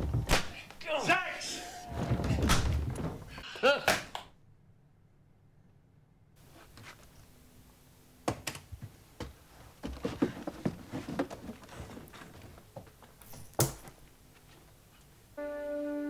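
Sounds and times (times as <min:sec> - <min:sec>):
objects clattering in wooden trunk: 0:02.0 - 0:03.4, 0:09.2 - 0:14.0.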